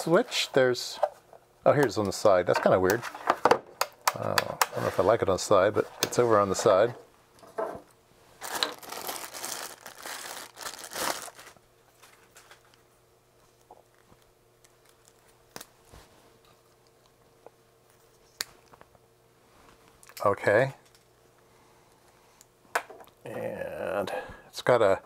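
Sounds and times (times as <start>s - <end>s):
plastic bag crinkling and tearing: 8.4s - 12.7s.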